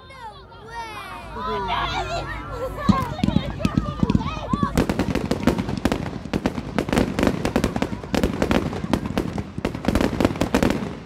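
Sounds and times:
fireworks bangs and crackles: 2.9s - 11.0s.

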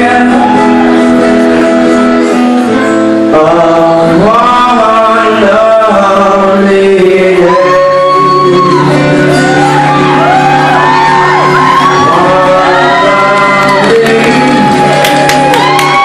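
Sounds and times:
man singing: 0.0s - 9.5s, 11.7s - 15.0s
acoustic guitar: 0.0s - 16.0s
audience shouting and whooping: 0.1s - 1.2s, 7.4s - 16.0s.

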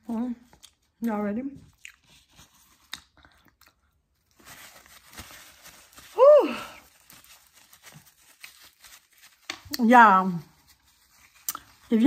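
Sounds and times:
paper napkin rustling: 4.3s - 12.0s.

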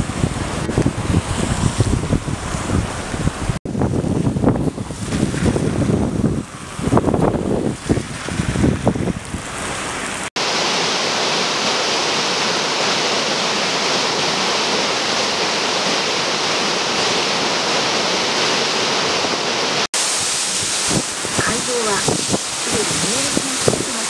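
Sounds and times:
wind buffeting microphone: 0.0s - 10.3s, 20.2s - 24.0s
water rushing over weir: 0.0s - 24.0s.

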